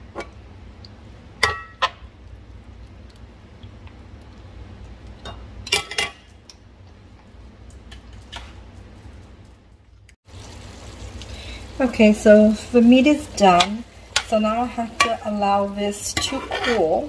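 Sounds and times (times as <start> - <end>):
metal spatula scraping skillet: 16.1 - 17.0.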